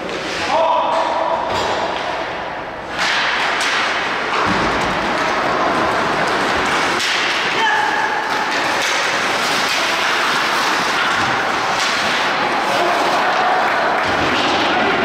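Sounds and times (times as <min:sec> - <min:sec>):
ice hockey rink din: 0:00.0 - 0:15.0
thuds: 0:03.0 - 0:05.2.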